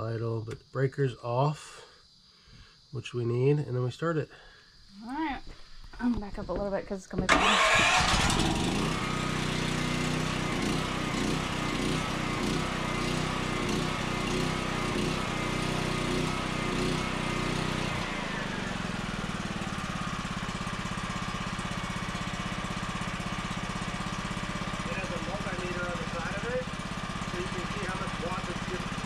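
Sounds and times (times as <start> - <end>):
portable generator engine running: 7.3 - 29.0.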